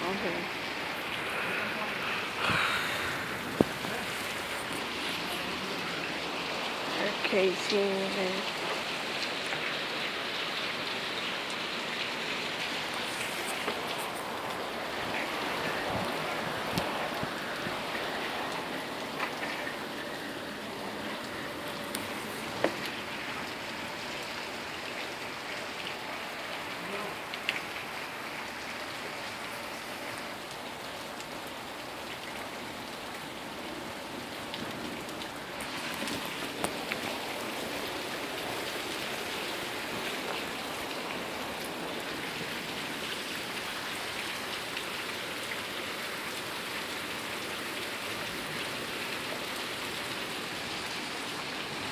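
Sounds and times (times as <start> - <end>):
rain hissing on surfaces: 0.0 - 51.9
sharp taps of raindrops: 3.4 - 5.1, 11.4 - 15.4, 16.0 - 19.9, 21.2 - 23.1, 27.3 - 27.9, 34.5 - 38.5.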